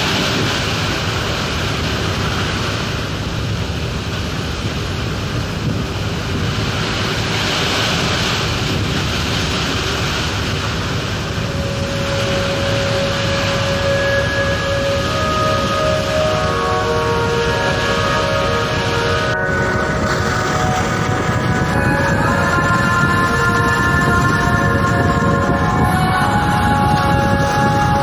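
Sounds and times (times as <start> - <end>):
ship hull through breaking waves: 0.0 - 28.0
wind buffeting microphone: 0.0 - 28.0
held tones: 11.3 - 28.0.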